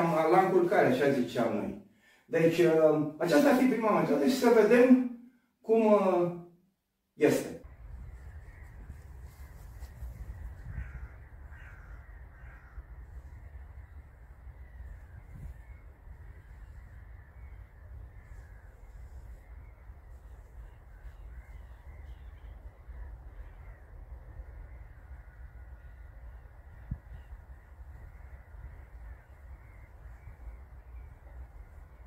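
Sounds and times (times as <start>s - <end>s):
wind rumbling on microphone: 7.6s - 32.0s
birds calling: 7.7s - 32.0s.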